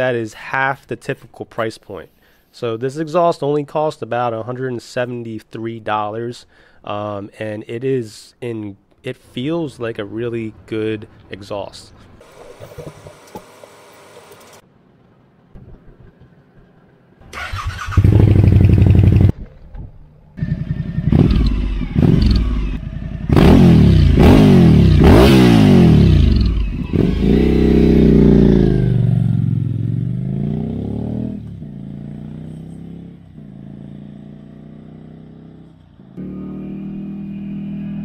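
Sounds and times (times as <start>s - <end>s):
motorcycle engine revving: 17.3s - 38.0s.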